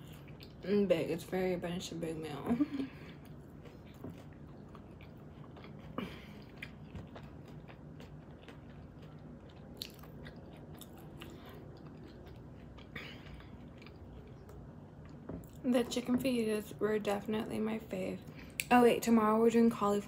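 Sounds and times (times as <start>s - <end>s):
person chewing: 0.0s - 0.6s, 3.0s - 15.6s.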